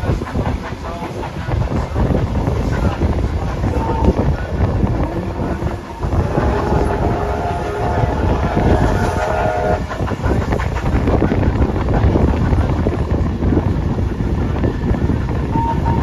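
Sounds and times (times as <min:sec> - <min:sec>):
train rumble and wheel clatter: 0:00.0 - 0:16.0
wind on microphone: 0:00.0 - 0:16.0
steam locomotive whistle: 0:05.9 - 0:09.9, 0:15.5 - 0:16.0.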